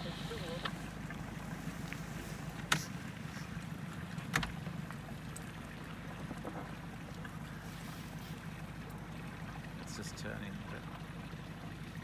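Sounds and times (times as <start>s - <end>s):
outboard motor humming: 0.0s - 12.0s.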